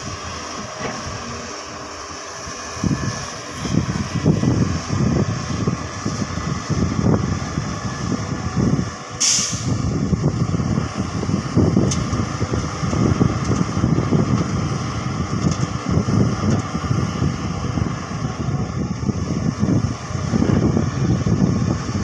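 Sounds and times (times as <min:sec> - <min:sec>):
dump truck engine running: 0:00.0 - 0:22.0
excavator diesel engine under load: 0:00.0 - 0:22.0
air hiss: 0:09.2 - 0:09.8.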